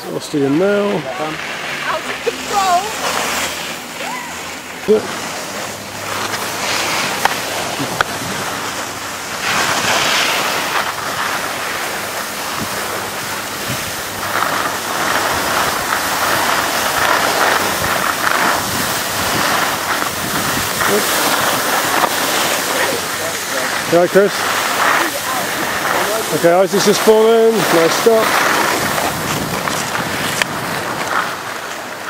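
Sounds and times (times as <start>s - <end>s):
skis scraping over snow: 0.0s - 32.0s
wind on microphone: 15.2s - 23.1s, 28.4s - 31.4s.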